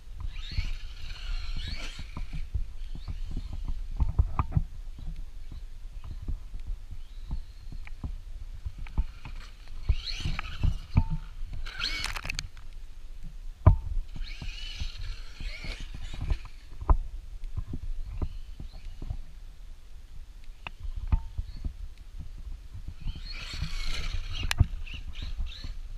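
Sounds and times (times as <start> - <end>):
electric motor whining: 0.2 - 3.8, 8.9 - 12.5, 14.1 - 16.7, 23.0 - 25.8.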